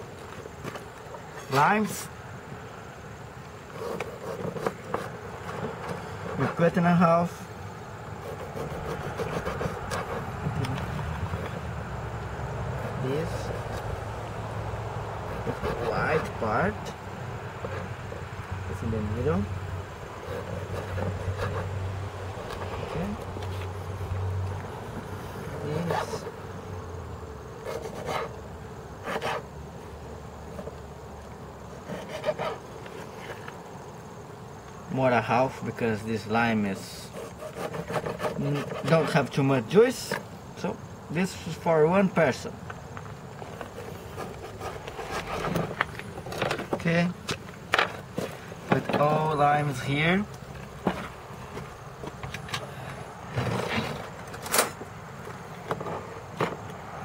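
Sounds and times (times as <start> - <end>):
faint steady hum: 0.0 - 57.0
knife cutting on plastic board: 8.2 - 11.6, 31.8 - 32.6.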